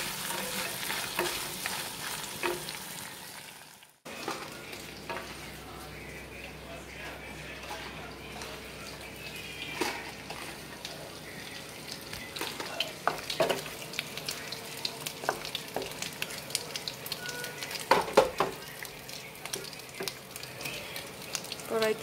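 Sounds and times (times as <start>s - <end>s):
hot oil sizzling and popping: 0.0s - 22.0s
wooden spatula knocking on pan: 17.9s - 18.6s.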